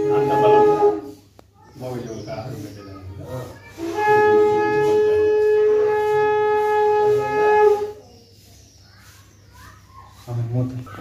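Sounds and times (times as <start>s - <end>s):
conch shell blown: 0.0s - 1.3s, 3.8s - 8.0s.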